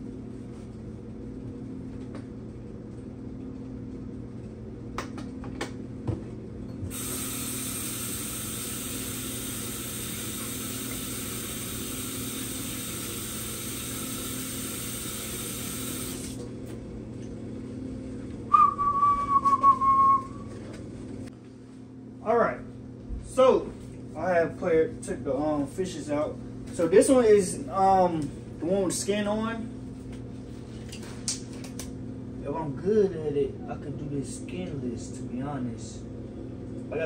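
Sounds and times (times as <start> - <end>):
tap water running: 6.9 - 16.6
short loud whistle: 18.5 - 20.5.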